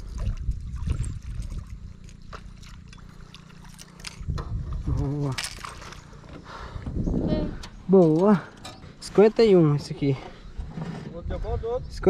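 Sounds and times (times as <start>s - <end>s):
water splashing and trickling: 0.0s - 6.4s
steady low rumble: 0.0s - 12.0s.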